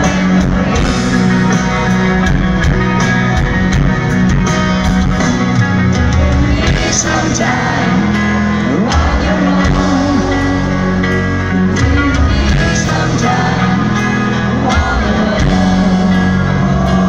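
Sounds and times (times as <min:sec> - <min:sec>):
live rock band playing ballad: 0:00.0 - 0:17.0
person singing: 0:06.2 - 0:17.0.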